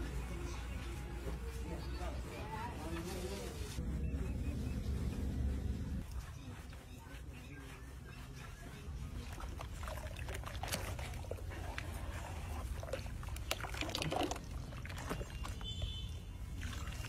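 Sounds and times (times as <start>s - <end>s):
liquid sloshing and splashing: 9.2s - 17.0s
liquid trickling from mug: 12.8s - 16.0s.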